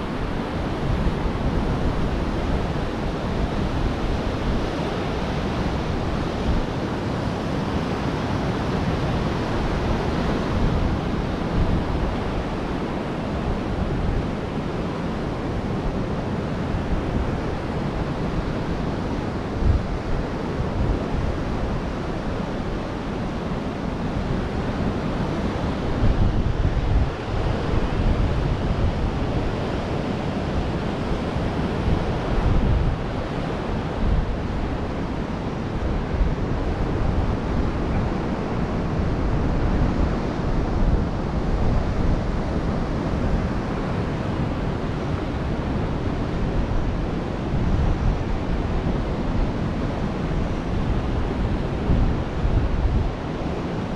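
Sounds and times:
ocean surf on sandy beach: 0:00.0 - 0:53.9
wind buffeting microphone: 0:00.0 - 0:53.9.

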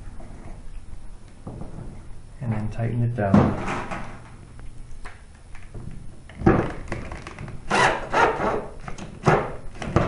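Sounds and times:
cordless drill driving a screw: 0:07.7 - 0:08.6.

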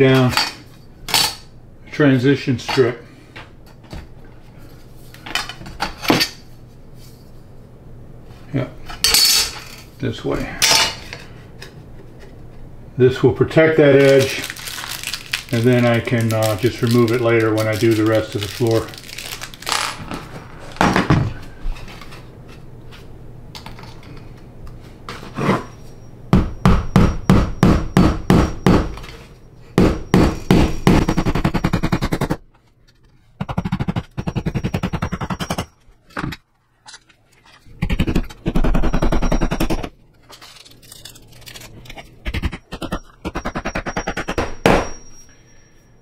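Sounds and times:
hammer striking metal strip: 0:42.3 - 0:45.0.

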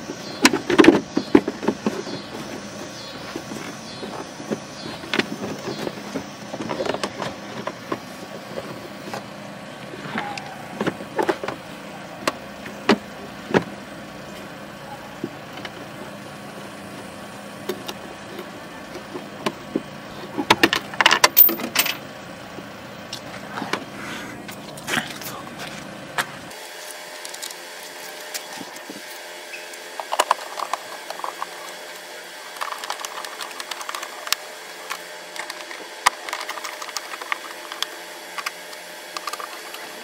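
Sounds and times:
screwdriver and plastic parts clicking: 0:32.5 - 0:39.9.

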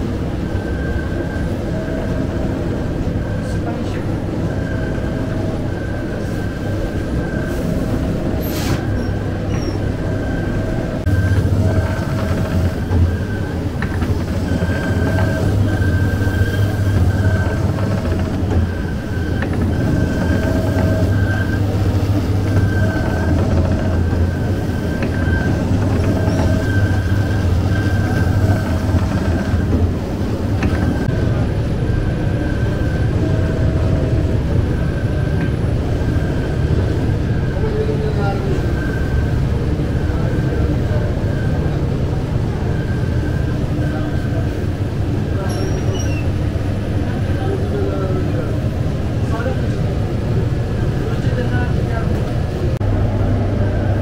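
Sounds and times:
machinery rumble and hum: 0:00.0 - 0:54.0
faint steady tones: 0:09.8 - 0:45.5.

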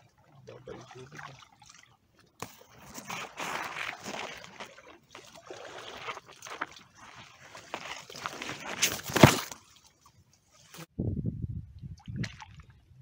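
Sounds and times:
person wading through water: 0:00.0 - 0:10.9
sharp splash: 0:00.7 - 0:10.9, 0:12.0 - 0:12.7.

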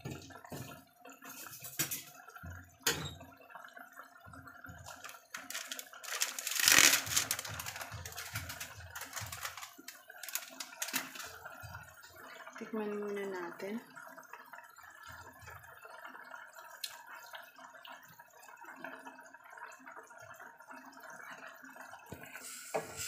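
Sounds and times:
sauce bubbling and popping: 0:02.0 - 0:12.7, 0:13.8 - 0:22.3
pot hissing: 0:22.3 - 0:23.0.

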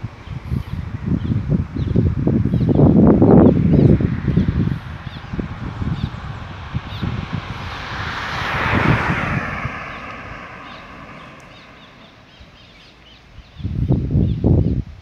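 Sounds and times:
small birds chirping: 0:00.2 - 0:07.3, 0:09.7 - 0:15.0
car passing: 0:02.4 - 0:13.6.

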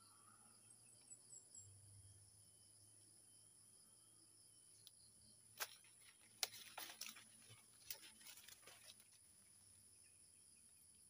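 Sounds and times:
insects chirring: 0:00.0 - 0:11.0
dry leaves crackling: 0:05.6 - 0:09.5.

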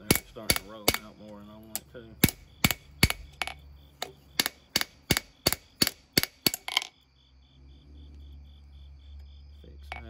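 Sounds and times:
hammer striking steel on anvil: 0:00.0 - 0:01.1
crickets chirping: 0:00.0 - 0:10.0.

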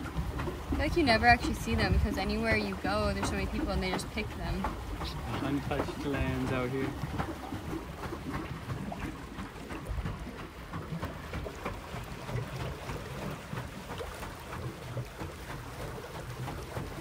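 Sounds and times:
water splashing and lapping: 0:00.0 - 0:17.0
wind on microphone: 0:00.6 - 0:05.4.

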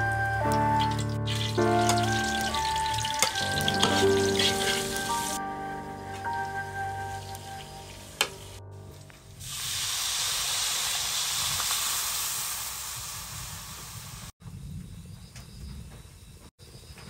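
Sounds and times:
water sizzling in hot oil: 0:00.8 - 0:05.4, 0:09.4 - 0:14.3.

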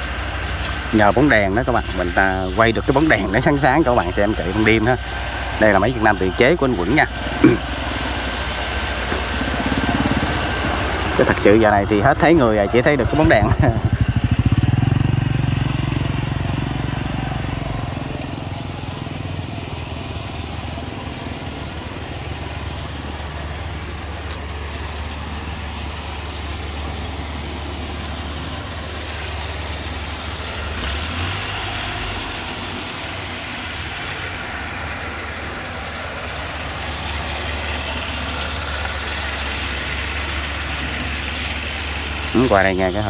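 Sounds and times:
harvester engine droning: 0:00.0 - 0:43.0.

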